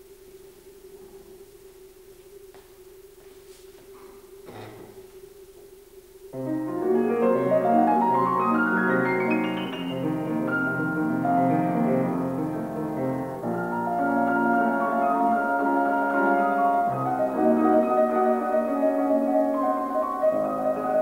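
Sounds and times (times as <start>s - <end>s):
grand piano playing: 6.4s - 21.0s.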